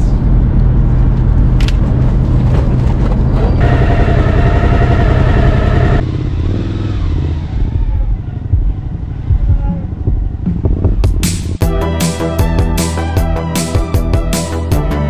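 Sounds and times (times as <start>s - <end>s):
engine idling rumble: 0.0s - 6.0s
steady high tone: 3.6s - 6.0s.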